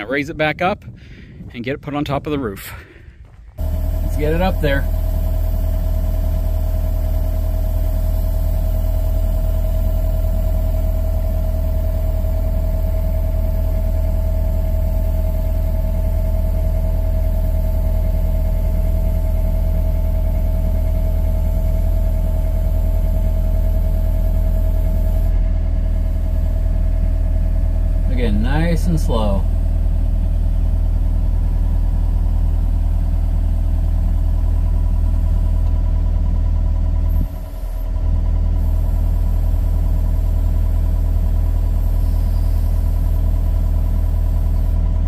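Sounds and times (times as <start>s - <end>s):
diesel engine running: 0.0s - 45.0s
steady whine: 3.2s - 36.0s.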